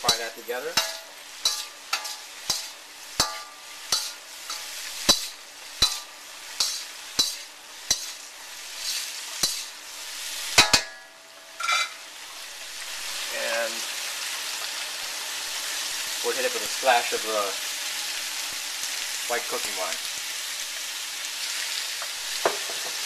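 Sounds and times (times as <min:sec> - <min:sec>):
spatula clanging on wok: 0:00.0 - 0:09.8, 0:10.5 - 0:12.0
metal spatula scraping wok: 0:00.0 - 0:12.4
food sizzling in oil: 0:00.0 - 0:23.0.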